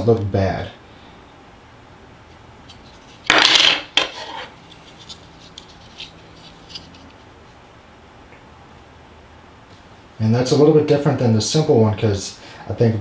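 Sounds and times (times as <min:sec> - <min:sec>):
plastic piece rubbing in fingers: 0:04.0 - 0:07.2.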